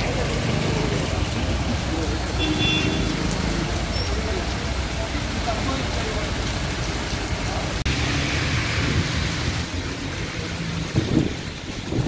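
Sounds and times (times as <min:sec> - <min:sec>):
rain on road: 0:00.0 - 0:12.0
traffic rumbling: 0:00.0 - 0:12.0
tyres hissing on wet pavement: 0:00.0 - 0:12.0.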